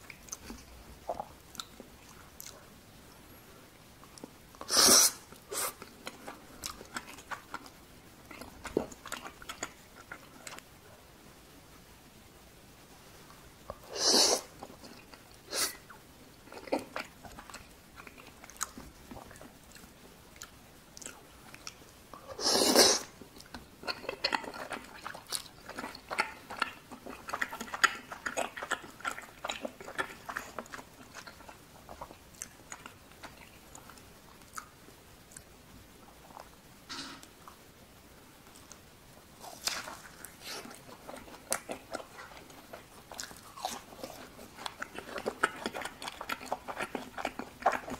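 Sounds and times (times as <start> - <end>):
chewing with mouth clicks: 0.0 - 3.2, 5.3 - 10.7, 13.3 - 36.6, 39.4 - 47.9
loud slurps: 22.4 - 23.1.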